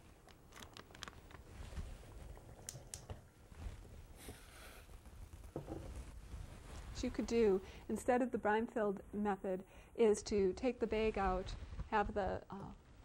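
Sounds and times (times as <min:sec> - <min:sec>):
plastic bag rustling: 0:00.0 - 0:02.5.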